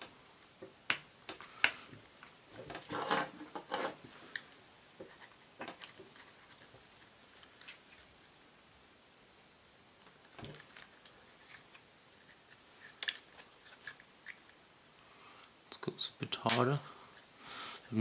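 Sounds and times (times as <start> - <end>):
plastic scraping rub: 2.8 - 4.0.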